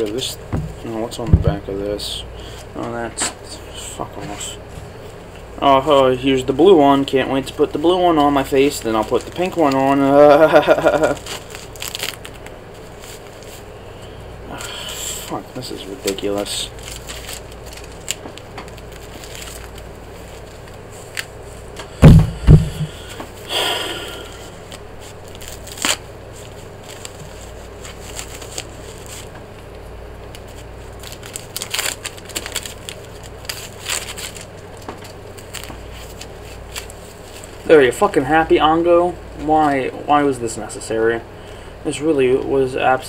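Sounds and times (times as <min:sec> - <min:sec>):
loud thumps: 0:00.5 - 0:01.7, 0:22.0 - 0:23.0
plastic wrapper crinkling: 0:06.6 - 0:13.7, 0:14.5 - 0:21.8, 0:24.6 - 0:29.4, 0:30.2 - 0:38.2.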